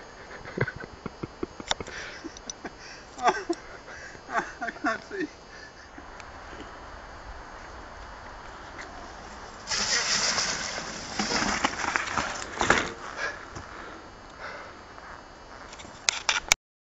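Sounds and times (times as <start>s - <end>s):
bike knocking and rattling: 8.8s - 13.7s
bike splashing through puddle: 9.2s - 13.0s.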